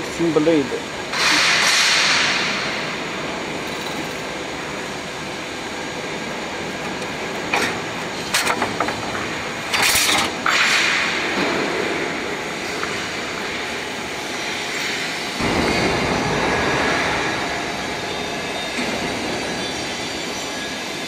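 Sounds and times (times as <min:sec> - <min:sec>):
workshop machinery noise: 0:00.0 - 0:21.0
loud rushing noise: 0:13.5 - 0:19.6.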